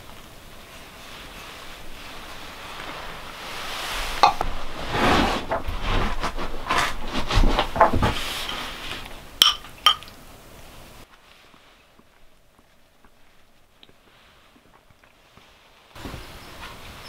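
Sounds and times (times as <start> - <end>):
metal spoon clinking ceramic bowl: 9.4 - 10.1.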